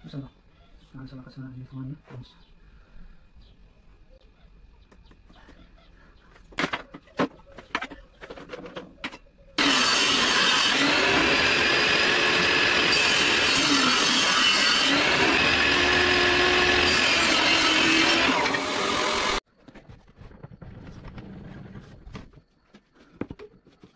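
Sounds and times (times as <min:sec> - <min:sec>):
table saw cutting wood: 0:09.6 - 0:19.4.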